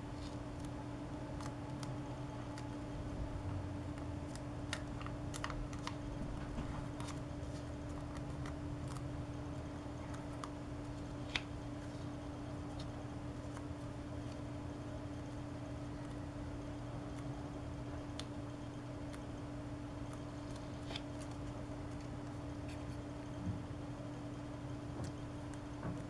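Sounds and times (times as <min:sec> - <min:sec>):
steady low hum: 0:00.0 - 0:26.0
paper crinkling and clicking: 0:03.8 - 0:09.1, 0:10.0 - 0:14.4, 0:20.1 - 0:23.0.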